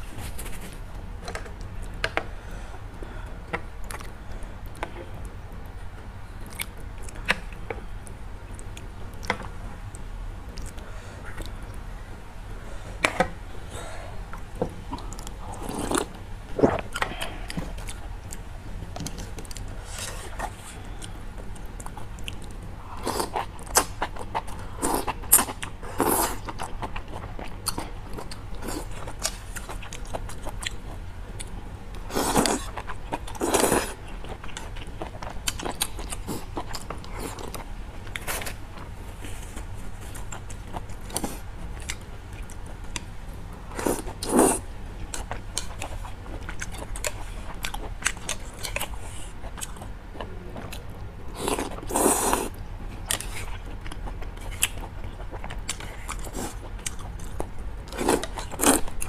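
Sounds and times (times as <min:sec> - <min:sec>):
chewing noodles: 0:14.4 - 0:43.1, 0:43.7 - 0:59.0.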